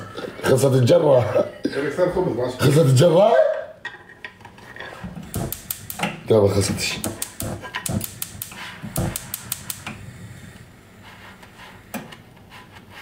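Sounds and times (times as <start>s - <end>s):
utensils clicking against a pan: 5.3s - 6.2s, 7.0s - 9.9s.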